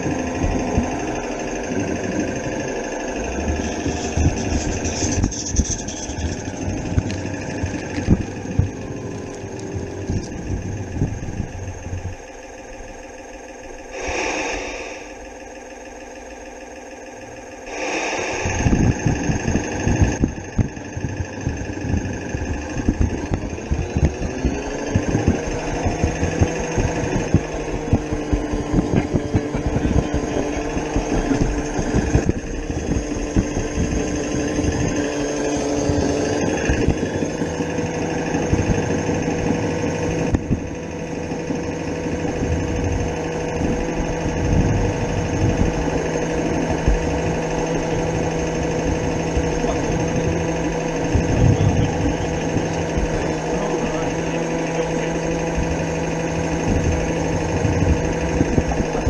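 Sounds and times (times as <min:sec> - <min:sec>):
steam locomotive exhaust beats: 0:00.0 - 0:59.0.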